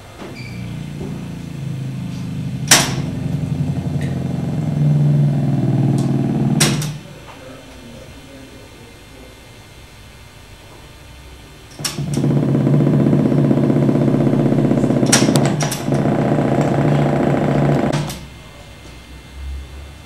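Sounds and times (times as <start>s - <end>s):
low buzzing drone: 0.0s - 7.1s, 11.8s - 18.7s.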